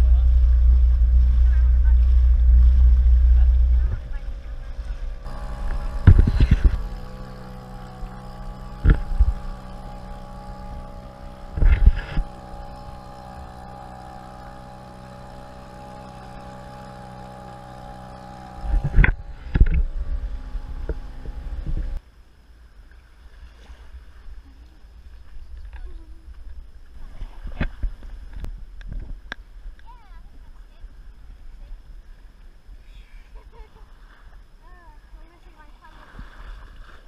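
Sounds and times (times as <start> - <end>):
outboard motor running: 0.0 - 22.0
loud thumps: 5.1 - 22.0.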